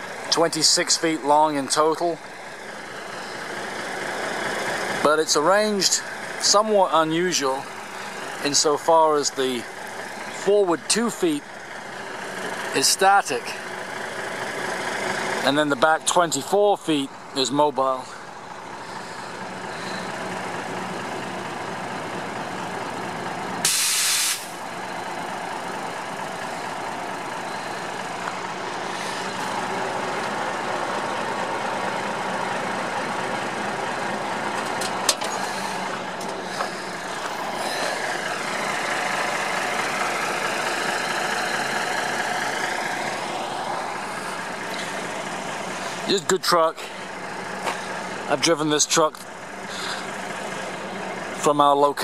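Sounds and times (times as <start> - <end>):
diesel truck engine running: 0.0 - 52.0
compressed air hiss: 23.6 - 24.6.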